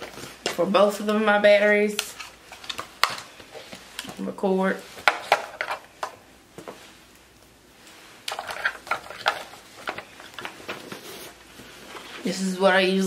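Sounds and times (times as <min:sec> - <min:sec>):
plastic objects clicking and rattling: 0:05.0 - 0:06.2, 0:08.3 - 0:10.8.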